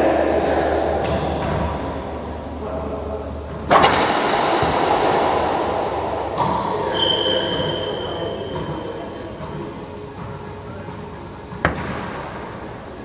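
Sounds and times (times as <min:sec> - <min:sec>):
racquetball hits echoing: 0:00.9 - 0:02.1, 0:03.4 - 0:12.8
sneaker squeaking on hardwood floor: 0:06.8 - 0:10.5.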